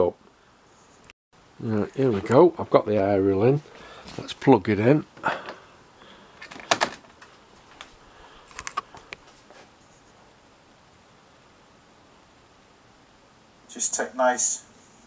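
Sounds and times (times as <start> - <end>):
cable handling knocks: 6.4 - 7.3.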